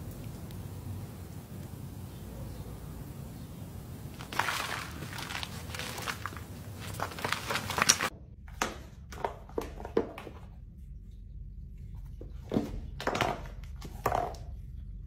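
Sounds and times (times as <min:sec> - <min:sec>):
garden soil scraping: 0:04.1 - 0:08.1.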